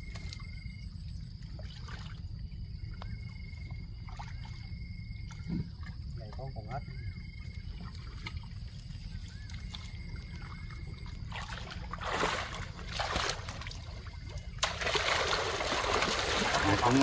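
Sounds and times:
people splashing through water: 7.7 - 17.0.

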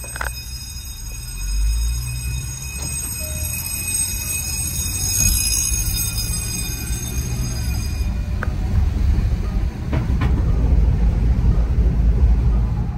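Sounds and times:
thin high whine: 0.0 - 8.4
engine and tyres rumbling in cabin: 0.0 - 12.9.

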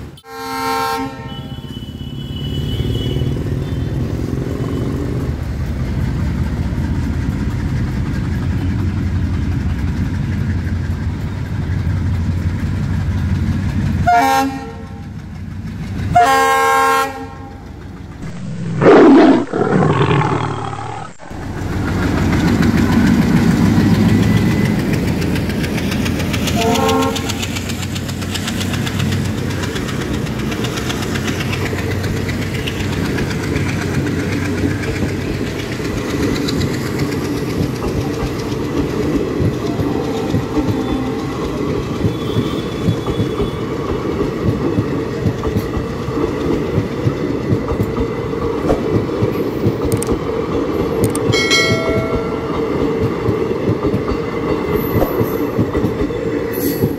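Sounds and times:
train coaches rumbling past: 0.0 - 56.9
locomotive horn blowing: 0.2 - 3.9, 14.1 - 15.0, 16.2 - 17.6, 26.6 - 27.4
wheels clacking over rail joints: 20.6 - 56.9.

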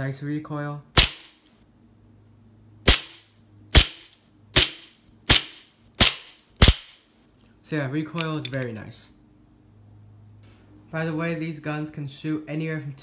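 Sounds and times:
airsoft pistol shots: 1.0 - 1.4, 2.8 - 7.0.

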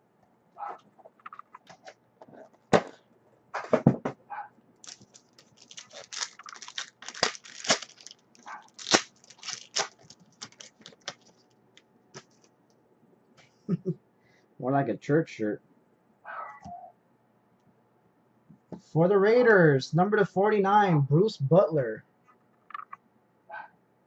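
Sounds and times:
wrapper crinkling and tearing: 4.8 - 11.5.

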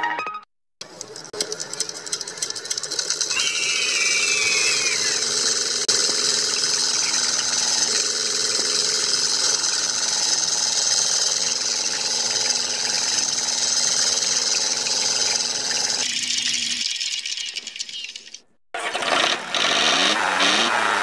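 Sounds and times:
model diesel engine chattering: 0.8 - 16.0
pump moving water: 0.8 - 21.0.

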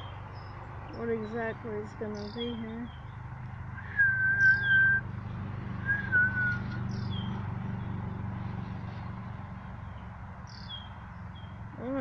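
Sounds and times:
bird down-slurred call: 3.8 - 5.0
whistled notes: 3.8 - 5.0, 5.8 - 6.8.

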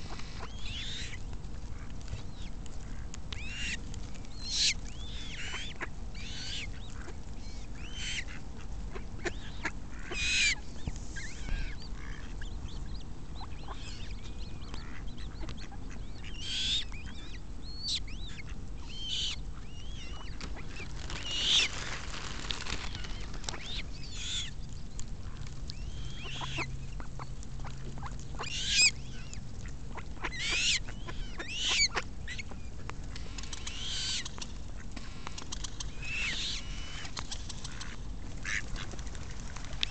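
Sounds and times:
low background rumble: 0.0 - 39.9
ducks quacking: 4.5 - 7.2, 7.8 - 10.6, 13.4 - 17.4, 26.0 - 32.9, 36.1 - 39.0
coots calling: 25.8 - 27.3, 28.0 - 29.4, 30.0 - 32.6.

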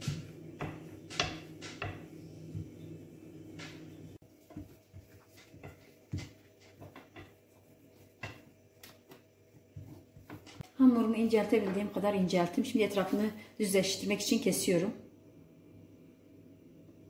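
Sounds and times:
wooden rolling pin knocks: 0.0 - 2.8, 3.5 - 3.9
hands rubbing and patting dough: 0.0 - 10.7
rolling pin rolling dough: 0.0 - 10.7.

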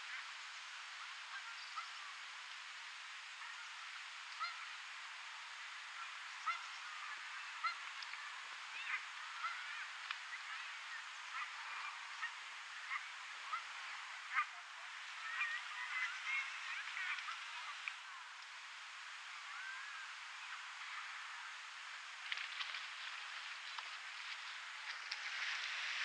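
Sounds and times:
background hiss: 0.0 - 26.0
waterfowl calling: 3.4 - 4.8, 5.9 - 18.4.

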